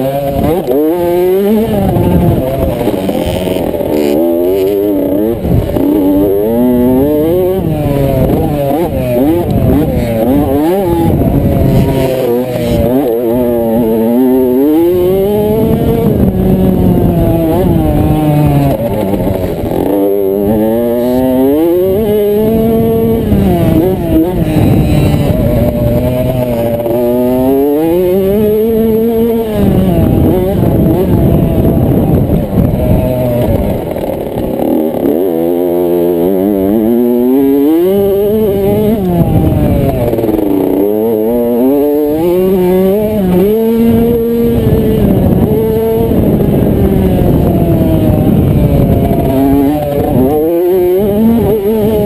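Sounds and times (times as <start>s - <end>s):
motocross bike engine revving: 0.0s - 52.0s.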